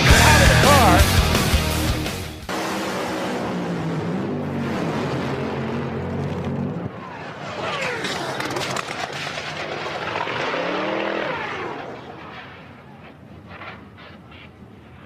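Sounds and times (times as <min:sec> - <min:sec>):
rising and falling whine: 0:00.0 - 0:15.0
dragster crashing and tumbling: 0:04.7 - 0:13.8.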